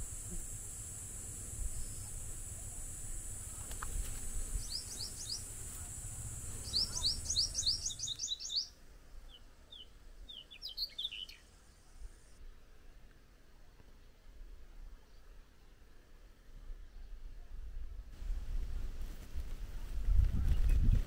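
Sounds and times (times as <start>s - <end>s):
insect hiss: 0.0s - 12.4s
bird chirping: 4.4s - 11.5s.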